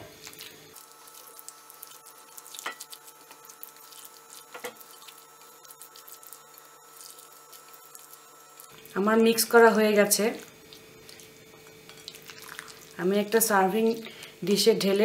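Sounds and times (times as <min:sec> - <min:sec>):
spatula squishing salad: 0:00.1 - 0:08.7, 0:10.1 - 0:13.0.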